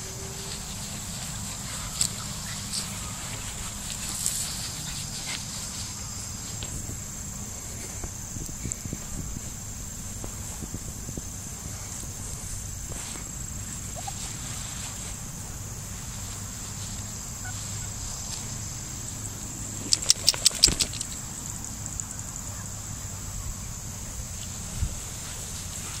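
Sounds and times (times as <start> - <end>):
high-pitched insect chorus: 0.0 - 26.0
sharp clicks: 19.8 - 21.2.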